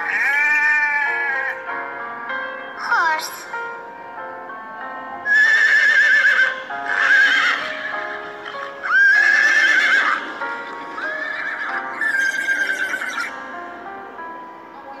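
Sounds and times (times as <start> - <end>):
horses whinnying: 0.0 - 1.6, 5.3 - 13.3
background music: 0.0 - 15.0.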